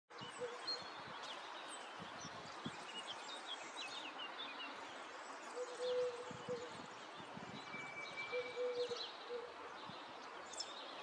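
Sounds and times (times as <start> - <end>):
small birds chirping: 0.2 - 11.0.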